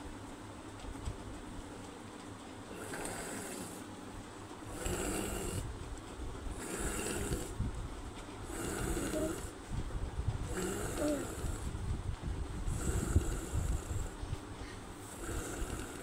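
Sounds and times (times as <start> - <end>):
woman snoring breaths: 2.7 - 3.9, 4.7 - 5.7, 6.5 - 7.6, 8.4 - 9.6, 10.4 - 11.9, 12.6 - 16.0.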